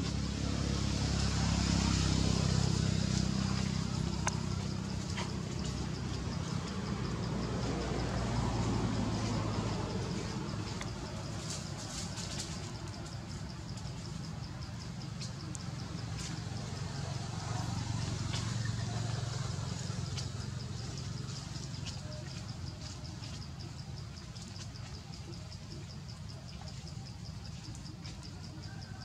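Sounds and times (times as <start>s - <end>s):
insect chirping: 0.0s - 29.0s.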